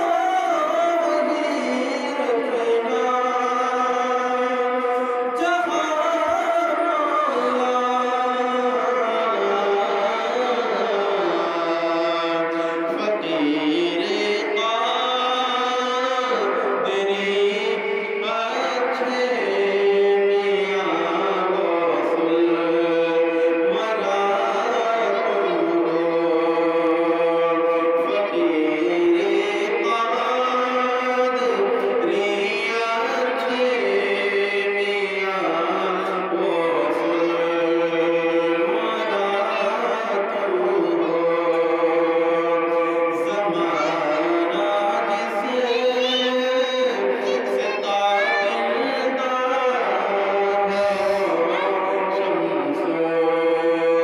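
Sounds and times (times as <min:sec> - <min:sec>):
man singing devotional song: 0:00.0 - 0:54.0.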